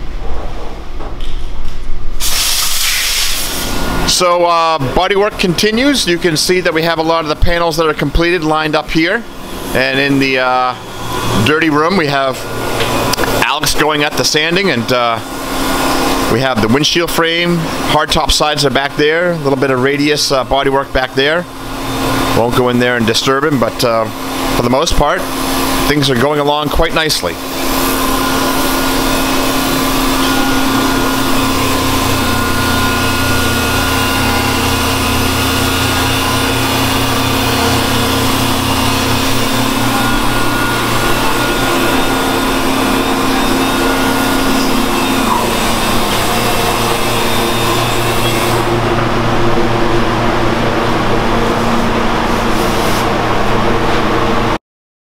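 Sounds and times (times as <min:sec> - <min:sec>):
power sander hissing: 0:27.2 - 0:49.2.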